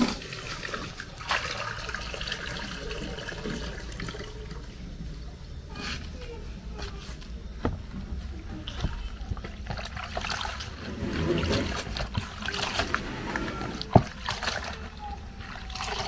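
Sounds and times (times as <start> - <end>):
water splashing and trickling: 0.0 - 5.4, 8.6 - 16.0.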